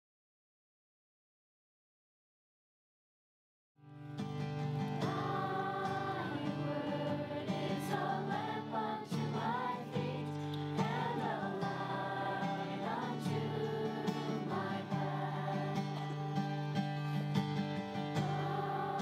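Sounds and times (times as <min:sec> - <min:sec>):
group singing a worship song: 0:04.8 - 0:19.0.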